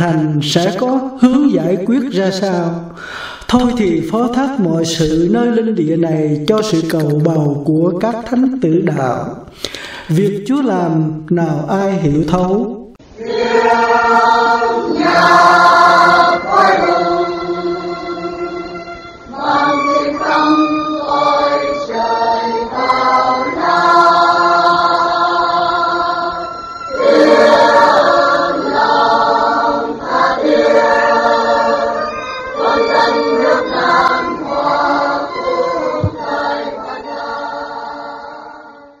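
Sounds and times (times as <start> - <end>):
choir singing held notes: 13.0 - 39.0.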